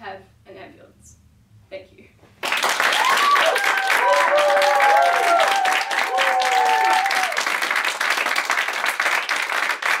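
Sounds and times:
audience clapping: 2.4s - 10.0s
voices cheering: 2.9s - 7.5s.

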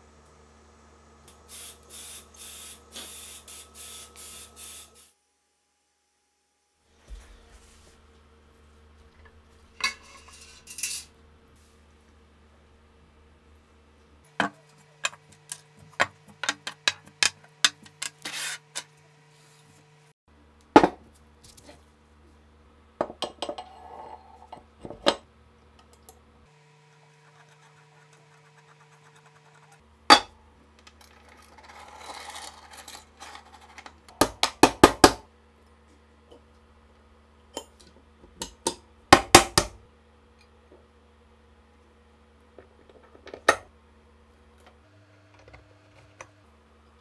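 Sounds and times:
metal scraping: 9.7s - 11.1s.

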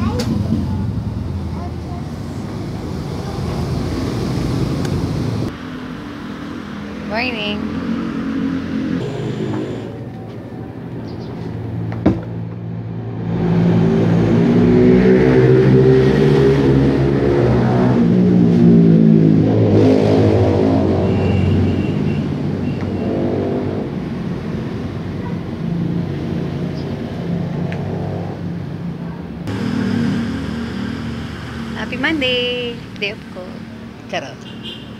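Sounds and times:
car engine revving: 6.8s - 10.2s, 12.9s - 28.7s, 29.4s - 33.7s.

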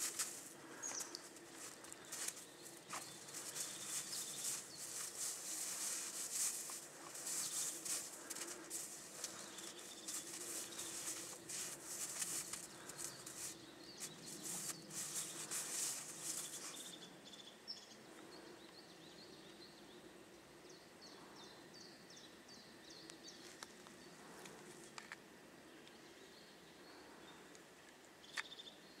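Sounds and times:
dog rolling in crunching snow: 0.0s - 17.0s.

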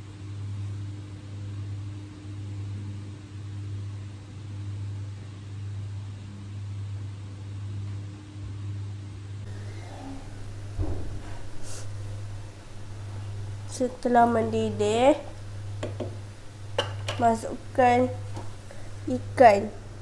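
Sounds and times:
low pulsing hum: 0.0s - 20.0s
faint hiss: 9.5s - 20.0s.

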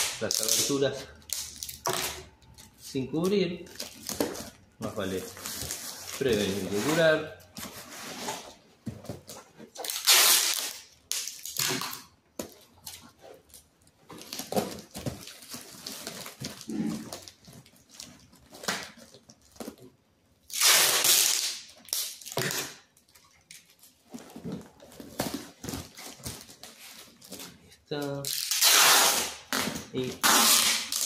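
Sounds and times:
packing tape ripping off roll: 0.0s - 2.3s, 9.7s - 12.1s, 14.2s - 23.1s, 28.1s - 31.0s.

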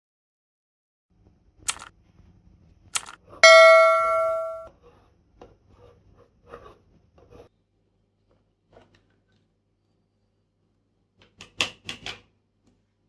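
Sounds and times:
notification bell ding: 3.4s - 4.7s.

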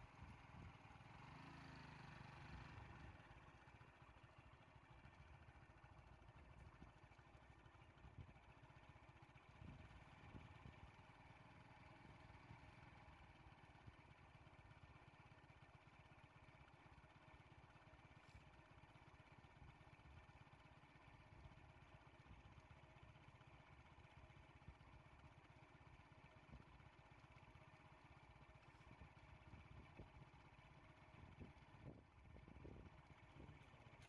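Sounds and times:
small vehicle engine idling: 0.0s - 34.0s.

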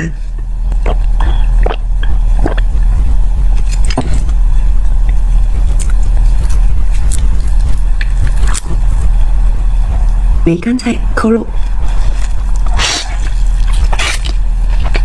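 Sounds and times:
steady low rumble: 0.0s - 15.0s
person gulping drink: 0.7s - 2.7s.

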